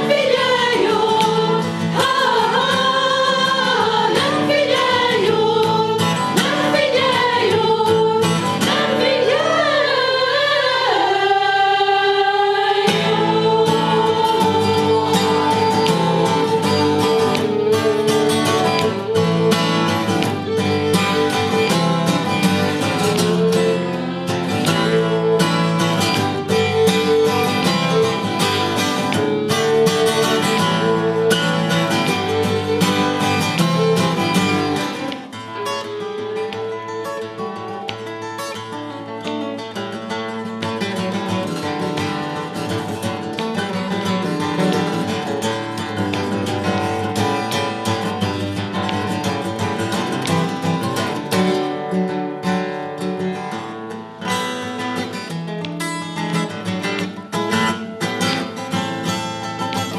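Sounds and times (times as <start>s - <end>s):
women's choir singing: 0.0s - 37.7s
acoustic guitar strumming: 0.0s - 59.9s
violin: 0.0s - 59.9s.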